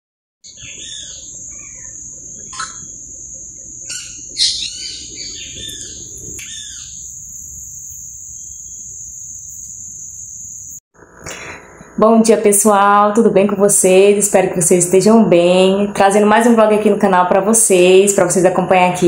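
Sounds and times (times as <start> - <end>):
birds chirping: 0.4 - 12.0
insect drone: 0.5 - 12.0.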